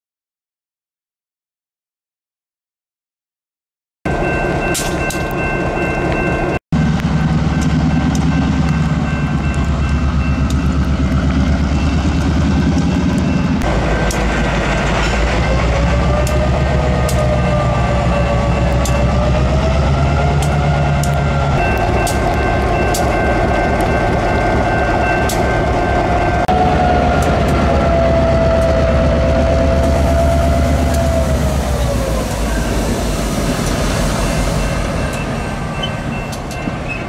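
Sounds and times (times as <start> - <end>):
diesel locomotive engine rumble: 4.1 - 37.0
train cars rolling over rails: 4.1 - 37.0
wavering high tone: 17.1 - 37.0.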